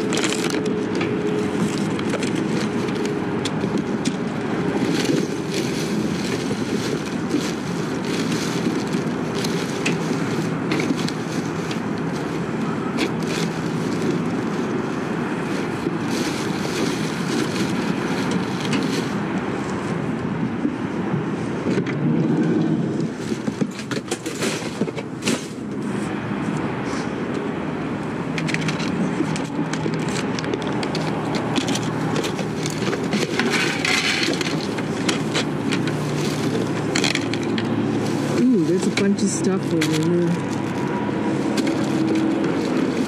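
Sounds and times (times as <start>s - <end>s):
vehicle road noise and engine rumble: 0.0s - 43.0s.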